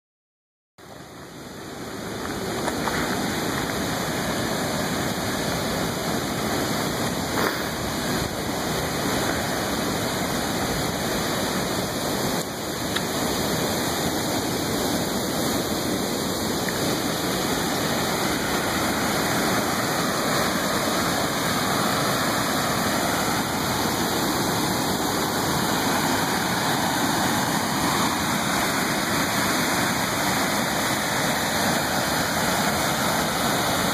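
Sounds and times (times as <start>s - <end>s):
river pouring over rocky falls: 0.8s - 33.9s.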